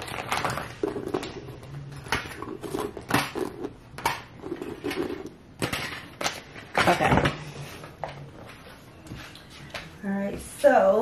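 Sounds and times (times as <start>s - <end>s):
paper bags rustling: 0.0s - 3.4s.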